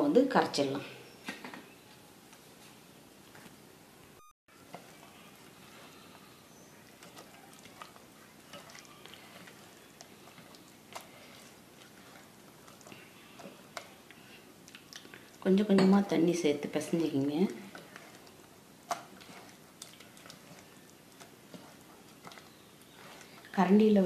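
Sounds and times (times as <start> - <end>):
wet squelching of batter mixed by hand: 4.5 - 24.0.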